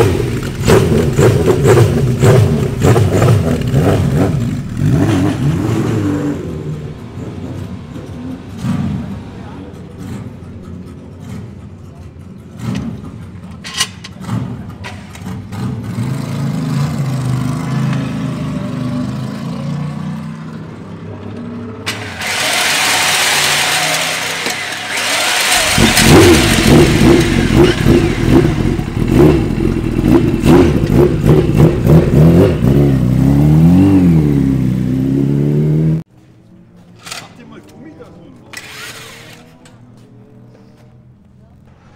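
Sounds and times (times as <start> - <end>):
motorcycle engine revving: 0.0 - 36.1
starter motor whirring: 21.9 - 28.2.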